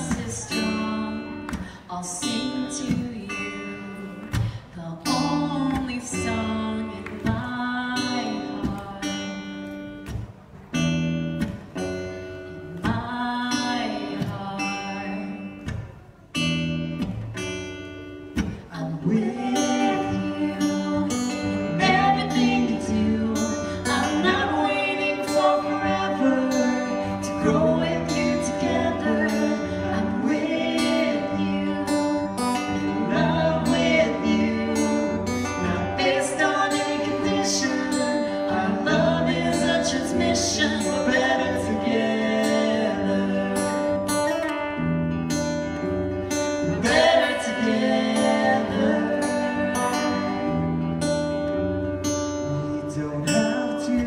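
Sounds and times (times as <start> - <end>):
acoustic guitar strumming: 0.0 - 54.0
person singing: 18.6 - 44.3, 46.6 - 50.5.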